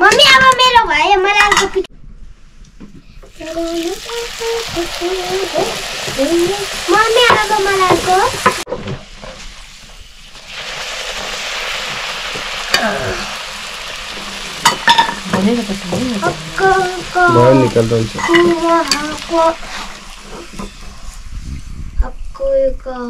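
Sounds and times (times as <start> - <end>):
dough sizzling in hot oil: 3.3 - 21.4.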